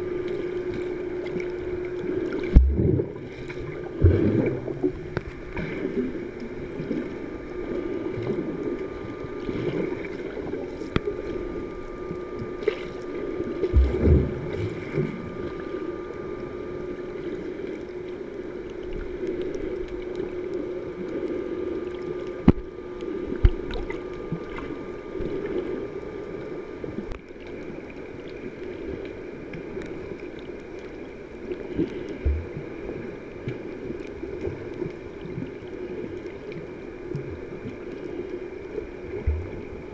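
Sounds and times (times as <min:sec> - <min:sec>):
low water surges: 0:00.0 - 0:39.9
muffled underwater water rush: 0:00.0 - 0:39.9.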